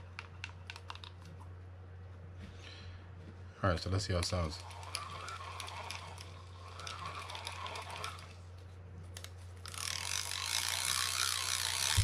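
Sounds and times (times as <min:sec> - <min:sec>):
fishing reel gears clicking: 0:04.6 - 0:08.3, 0:09.2 - 0:12.0.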